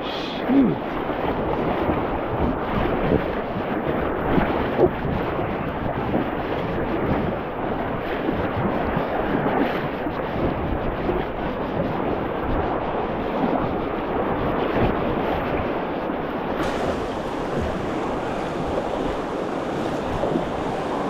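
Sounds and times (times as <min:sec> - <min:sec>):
river rapids rushing: 0:16.6 - 0:21.0.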